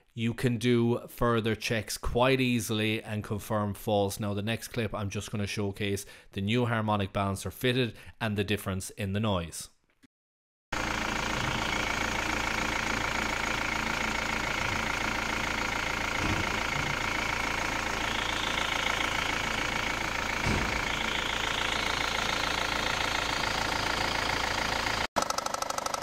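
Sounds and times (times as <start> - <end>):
car engine idling: 10.8 - 26.0.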